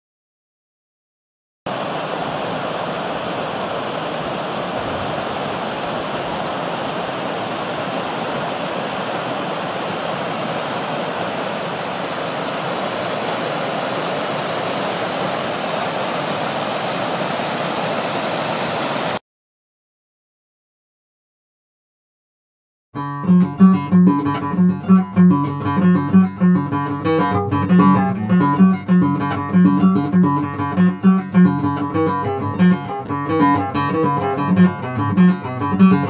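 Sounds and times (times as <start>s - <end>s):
creek water rushing over rocks: 1.7s - 19.2s.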